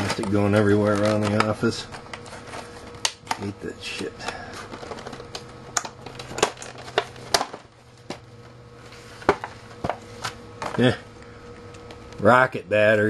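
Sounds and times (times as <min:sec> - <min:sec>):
plastic packaging crackling: 0:00.0 - 0:08.2
plastic snapping: 0:03.0 - 0:03.5.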